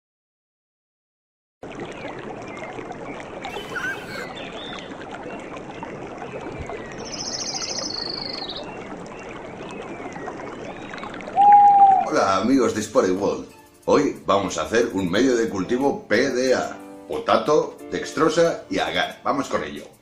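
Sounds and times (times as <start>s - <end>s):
river water flowing: 1.6s - 15.6s
birds chirping: 1.9s - 12.8s.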